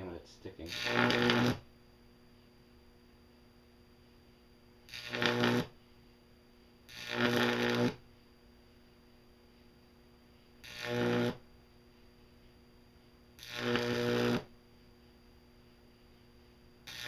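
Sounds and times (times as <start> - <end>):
high-voltage arc buzzing: 0.0 - 2.2, 4.4 - 5.8, 6.7 - 8.2, 10.0 - 17.0.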